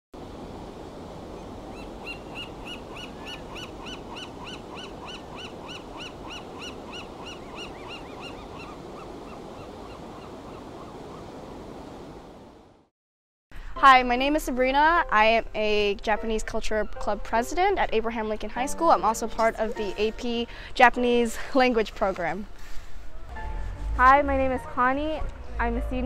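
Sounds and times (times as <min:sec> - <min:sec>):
ocean surf rushing: 0:00.2 - 0:12.9
bird giving sharp calls: 0:01.7 - 0:10.6.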